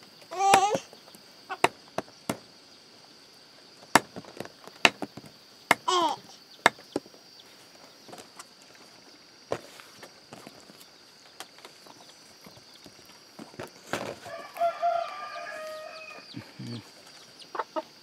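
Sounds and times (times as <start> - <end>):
cleaver chopping on wooden block: 0.4 - 0.8, 3.9 - 6.0.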